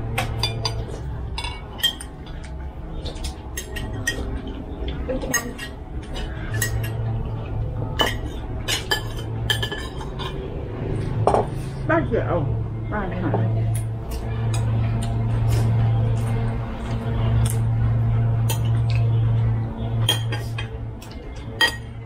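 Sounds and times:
cutlery clinking against dishes: 0.1 - 7.1, 8.0 - 10.4, 18.4 - 19.1, 20.0 - 22.0.

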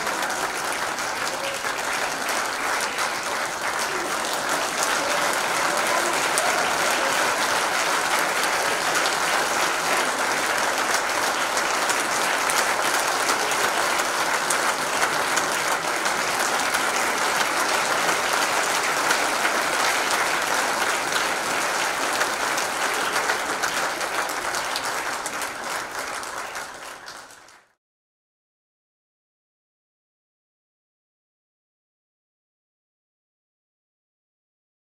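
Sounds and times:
audience applauding: 0.0 - 27.8.

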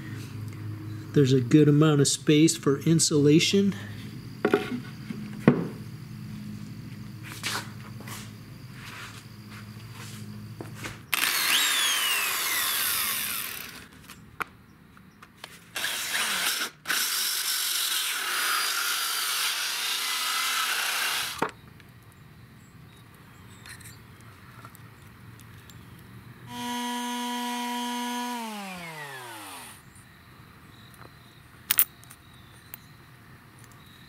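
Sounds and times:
electric drill with hole saw: 11.1 - 13.9, 15.8 - 21.5, 26.5 - 29.8.

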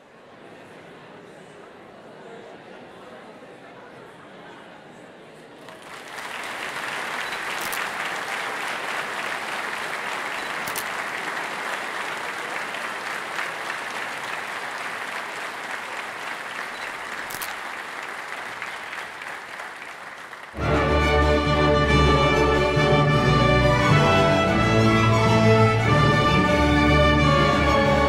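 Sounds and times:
audience applauding: 5.6 - 28.0
orchestra playing: 20.6 - 28.0.

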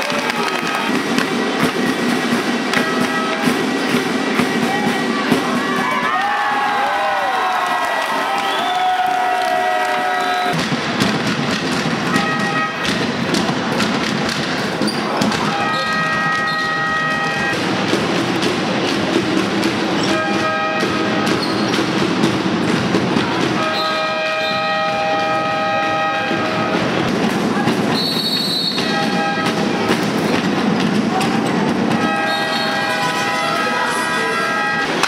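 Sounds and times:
noisy backing with sharp hits: 0.5 - 6.6, 10.4 - 35.0
sustained horn-like chords: 2.7 - 3.7, 20.1 - 21.4, 23.6 - 27.0, 28.8 - 29.9, 31.9 - 35.0.

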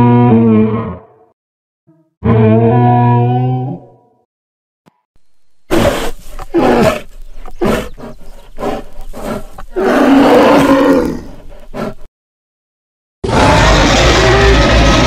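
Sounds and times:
creature growls and roars: 9.3 - 12.0, 13.2 - 15.0.

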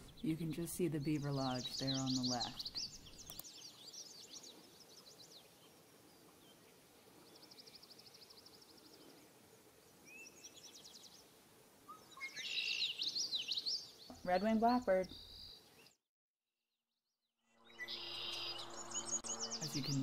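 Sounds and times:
blackbird song: 0.0 - 16.0, 17.6 - 20.0
songbirds singing: 0.0 - 16.0, 17.7 - 20.0
bird trill: 11.9 - 13.9, 17.6 - 20.0.

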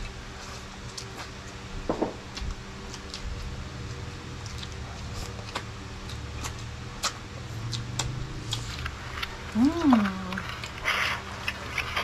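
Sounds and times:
crunchy chewing: 0.0 - 1.6, 2.3 - 12.0
low hum: 0.0 - 12.0
wet mouth clicks and smacks: 6.4 - 8.9.

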